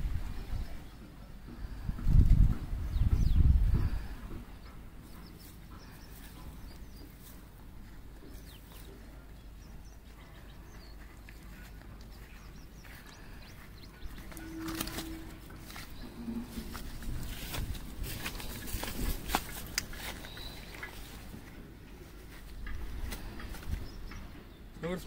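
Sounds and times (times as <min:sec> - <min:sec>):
rustling and clicking handling: 0:14.0 - 0:24.3.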